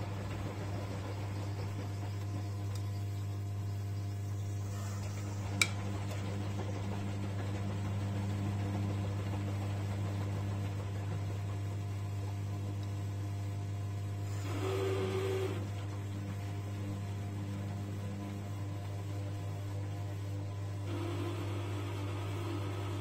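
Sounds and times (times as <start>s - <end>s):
steady machine tone: 13.8s - 15.7s.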